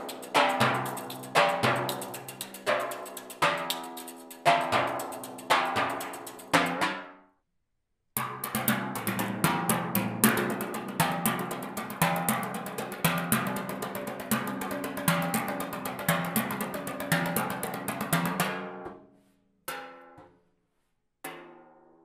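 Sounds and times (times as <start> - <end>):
timpani played with rods: 0.0 - 7.0.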